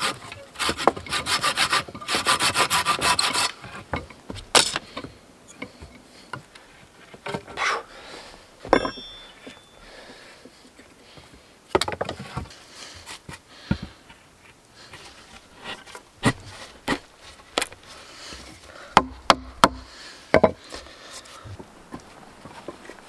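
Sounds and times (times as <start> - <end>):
wood scraping: 0.0 - 10.2, 11.2 - 23.0
wood knocking and clacking: 19.0 - 20.7.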